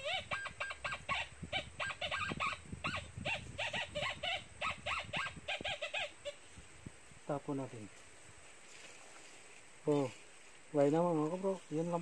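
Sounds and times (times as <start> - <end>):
animal chirping: 0.0 - 6.4.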